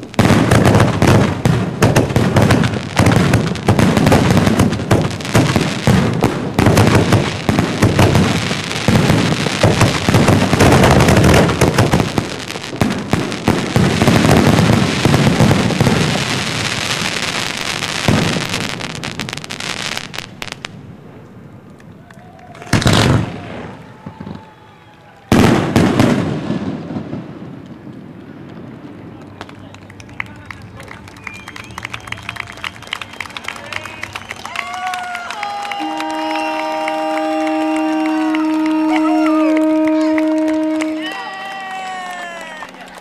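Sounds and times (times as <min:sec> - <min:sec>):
firework shells bursting: 0:00.0 - 0:22.0, 0:35.7 - 0:41.0
crackling firework stars: 0:00.0 - 0:43.0.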